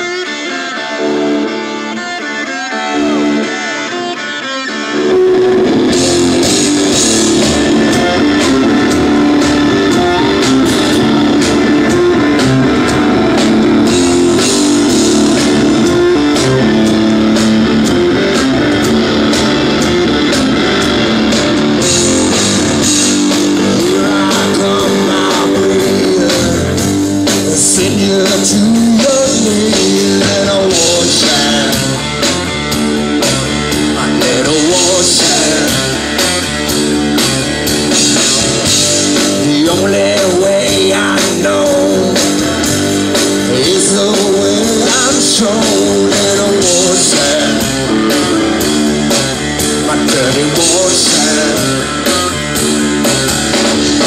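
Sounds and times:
drums at a steady beat: 0.0 - 54.0
electric guitar: 0.0 - 54.0
man singing: 6.7 - 14.6, 23.0 - 32.1, 33.9 - 36.2, 39.2 - 42.7, 43.4 - 48.7, 49.7 - 52.3.

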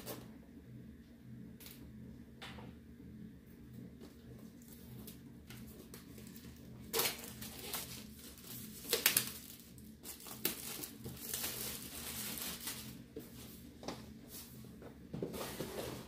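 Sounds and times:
paper and plastic crinkling: 5.8 - 13.4.

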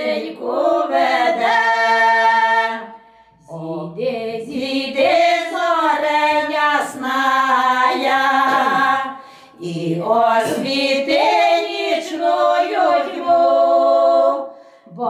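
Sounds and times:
women singing in harmony: 0.0 - 15.0.

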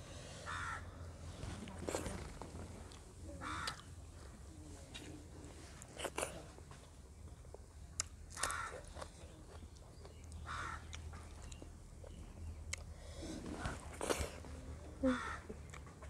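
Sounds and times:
person chewing: 5.8 - 6.5, 7.2 - 14.4.

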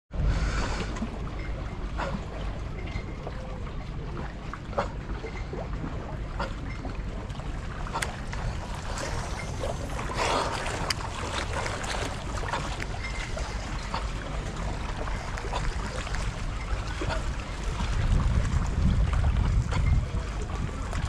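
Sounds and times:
water lapping against rocks: 0.2 - 21.0
wind buffeting microphone: 7.8 - 21.0.

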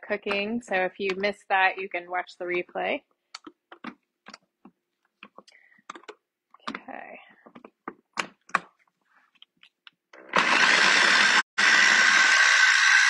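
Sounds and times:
plastic clicks and taps: 3.3 - 6.9.

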